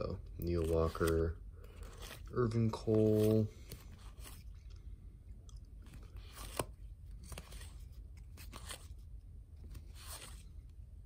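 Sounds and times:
cards swishing: 0:00.4 - 0:04.5, 0:05.8 - 0:09.0, 0:09.6 - 0:10.5.

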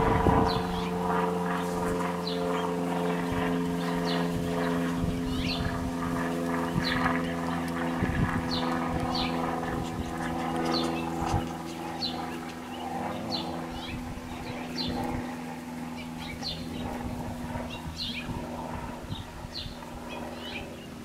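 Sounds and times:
low mechanical hum: 0:00.0 - 0:21.0
bird chirping: 0:08.5 - 0:15.0.

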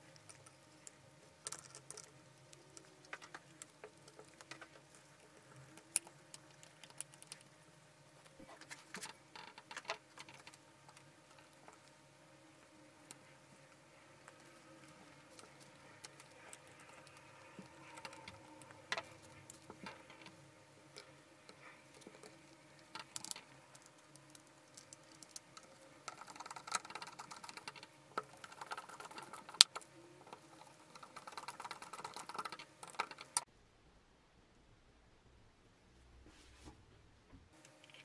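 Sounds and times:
plastic parts clicking and scraping: 0:08.3 - 0:11.9, 0:14.2 - 0:33.4.

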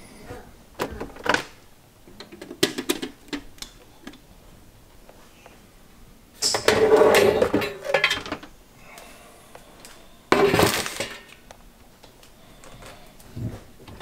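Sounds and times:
air fryer basket clattering: 0:06.4 - 0:08.4.

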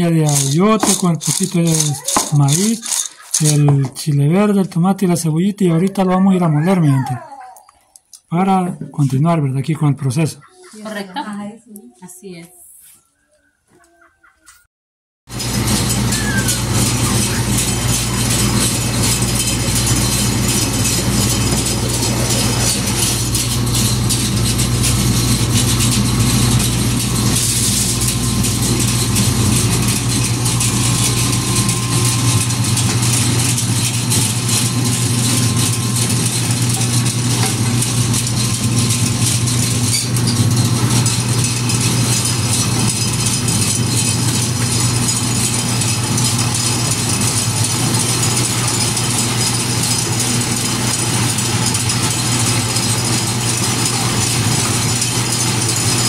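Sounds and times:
mill grinding: 0:00.0 - 0:06.9, 0:15.3 - 0:56.0
motor humming: 0:15.3 - 0:56.0.

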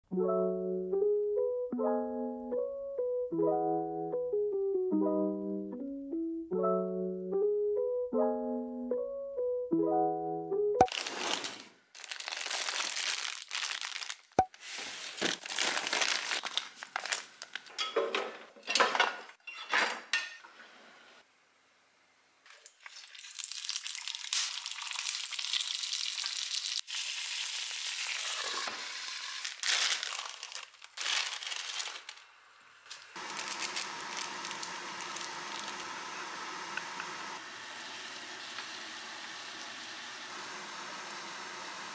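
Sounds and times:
plastic packets crinkling: 0:10.9 - 0:17.9, 0:29.0 - 0:36.0
dumplings sizzling in frying pan: 0:23.0 - 0:32.2.

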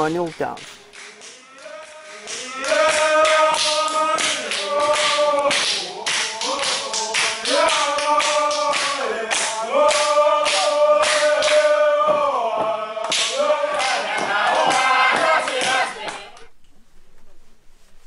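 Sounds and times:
group chanting in held notes: 0:00.9 - 0:16.5
feet stamping rhythm: 0:02.4 - 0:16.3.

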